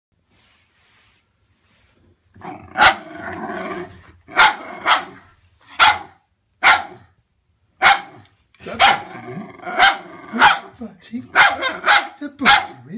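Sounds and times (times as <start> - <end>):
dog growling: 2.4 - 5.2, 8.6 - 10.8
dog barking sharply: 4.4 - 7.1, 7.8 - 9.1, 9.8 - 12.8.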